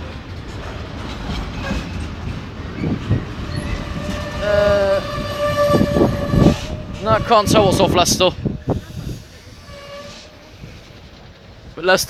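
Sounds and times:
wheels knocking over rail joints: 0:00.0 - 0:08.6
freight train rumbling past: 0:00.0 - 0:12.0.

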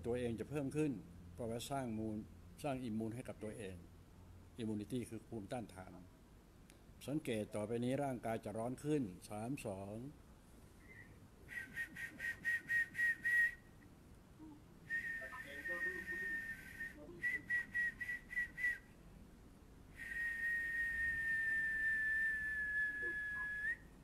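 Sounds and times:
high whistling: 0:10.8 - 0:13.8, 0:14.9 - 0:18.9, 0:20.0 - 0:23.9.

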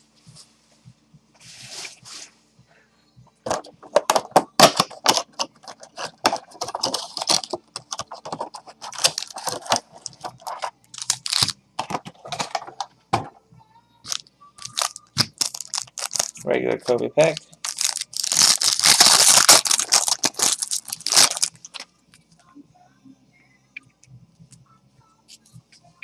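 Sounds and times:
wrapping crackling and tearing: 0:04.6 - 0:11.6, 0:14.1 - 0:16.4, 0:17.3 - 0:21.8.

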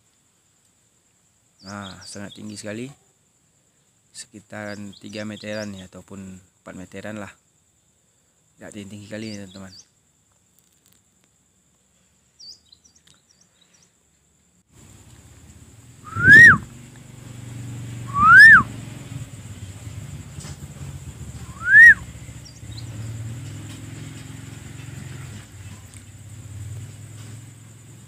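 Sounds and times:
person whistling rising and falling: 0:16.0 - 0:16.7, 0:18.1 - 0:18.7, 0:21.4 - 0:22.0.

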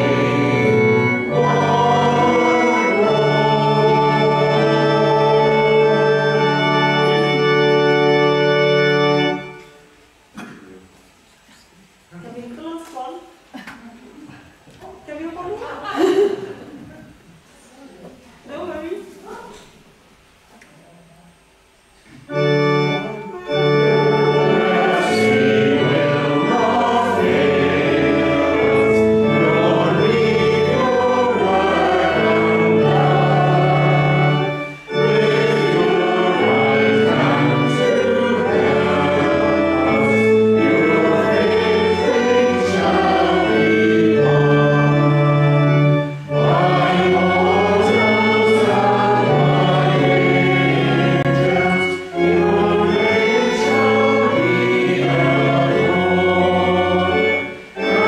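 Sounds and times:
congregation singing a hymn: 0:00.0 - 0:10.5, 0:22.2 - 0:58.0
organ chords: 0:00.0 - 0:11.0, 0:21.5 - 0:58.0.

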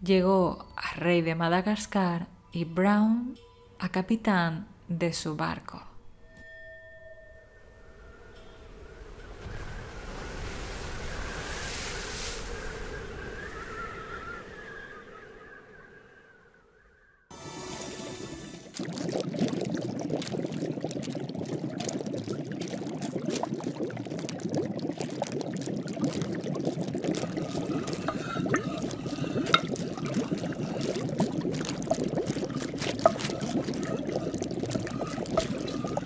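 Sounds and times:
liquid bubbling: 0:18.3 - 0:36.0.

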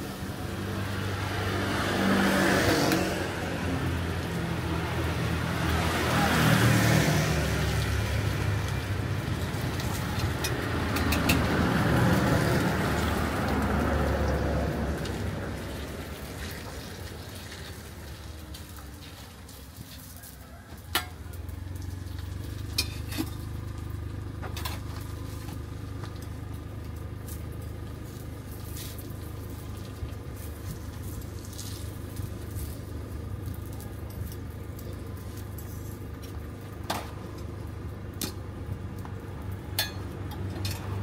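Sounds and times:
pancake sizzling in oil: 0:24.9 - 0:36.8.

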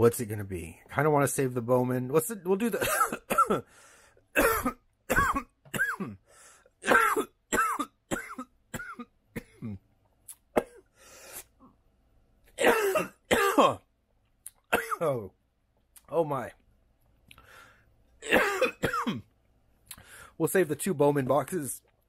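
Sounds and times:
man coughing harshly: 0:02.8 - 0:03.7, 0:04.3 - 0:09.8, 0:10.6 - 0:10.9, 0:12.6 - 0:13.8, 0:14.7 - 0:15.2, 0:18.2 - 0:19.3.

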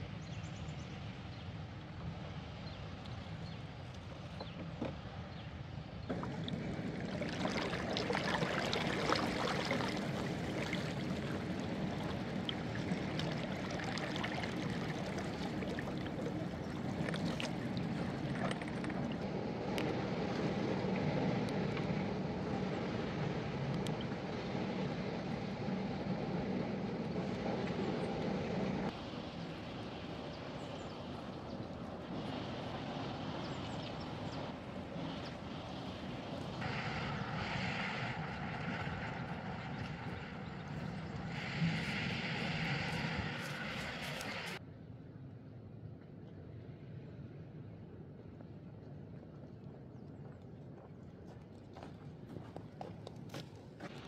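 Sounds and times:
river water gurgling around raft: 0:03.6 - 0:44.6.

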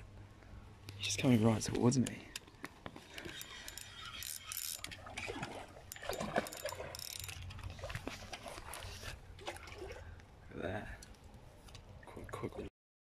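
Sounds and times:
fishing reel whirring and clicking: 0:03.0 - 0:07.7.

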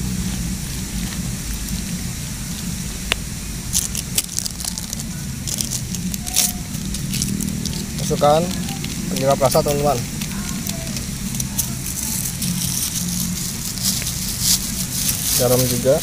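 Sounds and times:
sharp crackles and clicks: 0:00.0 - 0:16.0
steady low hum: 0:00.0 - 0:16.0.

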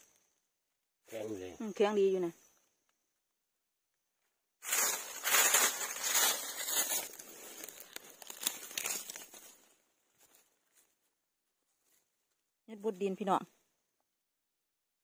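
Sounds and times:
dry leaves crackling and rustling: 0:04.6 - 0:10.4.

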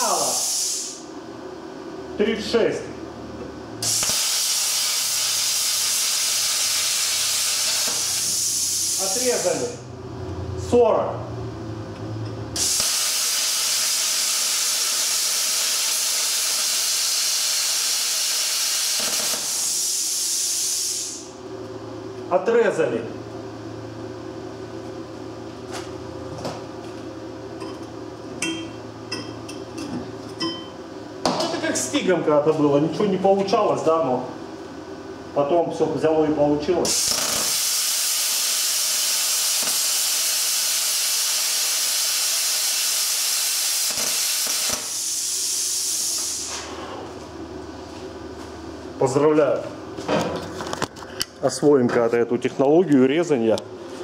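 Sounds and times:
plasma cutter hissing: 0:00.0 - 0:01.0, 0:03.8 - 0:09.8, 0:12.6 - 0:21.3, 0:36.8 - 0:46.7
plasma cutter electrical hum: 0:00.0 - 0:54.0.

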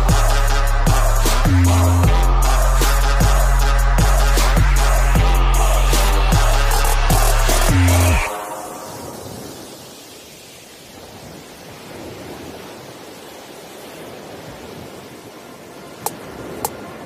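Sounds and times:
steady noise hiss: 0:04.8 - 0:17.0.

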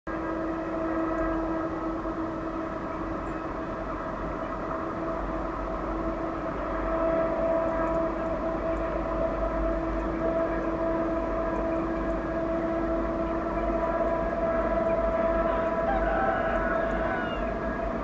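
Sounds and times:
locomotive drone with high whine: 0:00.1 - 0:18.0.

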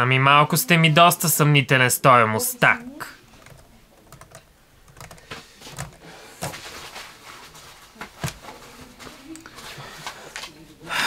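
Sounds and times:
keyboard keys clicking: 0:03.4 - 0:06.0.

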